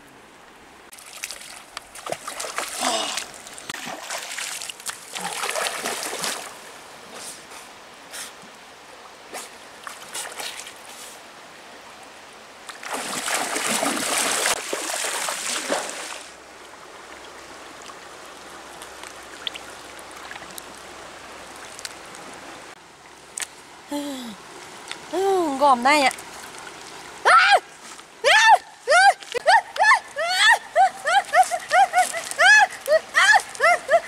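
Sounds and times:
stream running: 0.0s - 34.0s
legs wading through water: 0.9s - 6.7s, 12.7s - 16.4s, 29.1s - 34.0s.

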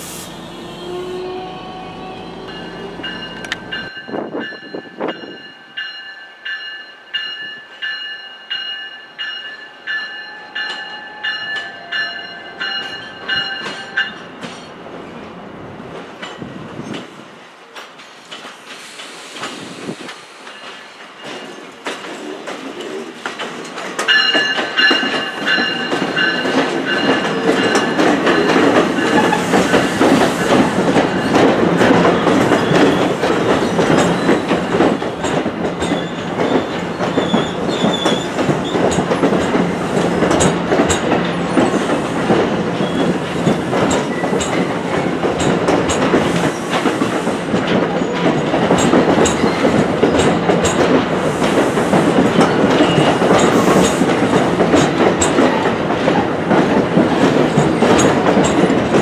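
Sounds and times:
passenger train rumbling past: 0.0s - 59.0s
bell ringing: 2.5s - 14.2s
wheels clacking over rail joints: 17.7s - 59.0s.

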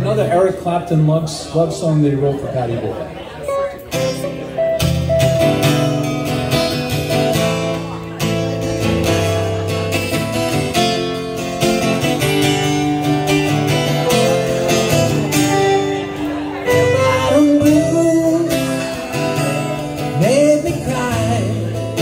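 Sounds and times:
electric guitar lead notes: 3.4s - 22.0s
acoustic guitar strumming chords: 3.5s - 22.0s.

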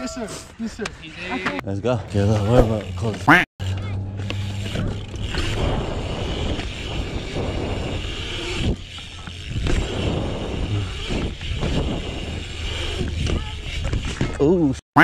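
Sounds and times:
bike tyres rolling on concrete: 1.8s - 14.8s
wind rumbling on microphone: 4.4s - 14.4s.

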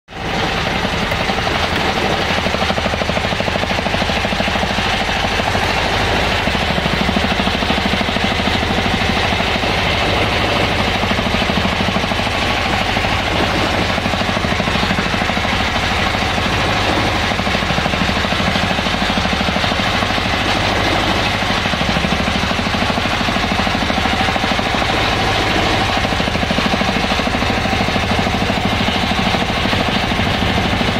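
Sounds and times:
small boat engine running: 0.1s - 30.9s.

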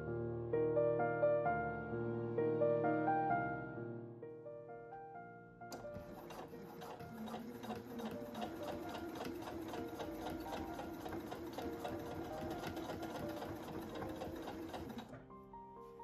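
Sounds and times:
sewing machine motor hum: 5.7s - 15.2s
sewing machine needle ticking: 5.7s - 15.2s.

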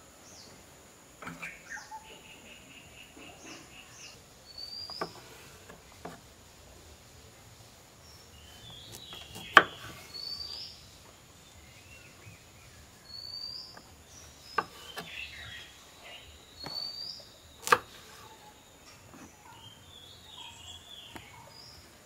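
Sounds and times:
birds chirping: 0.0s - 22.0s
knife chopping on wooden board: 4.9s - 6.2s, 8.8s - 10.0s, 14.5s - 15.1s, 17.6s - 18.2s.

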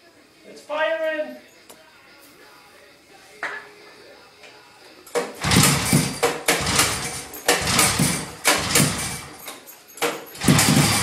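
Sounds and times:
two-stroke engine running roughly: 5.4s - 9.4s, 10.4s - 11.0s.

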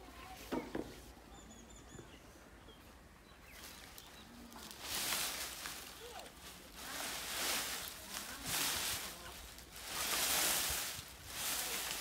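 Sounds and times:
small birds chirping: 0.2s - 12.0s
dry rustling of maize stalks: 3.4s - 12.0s.

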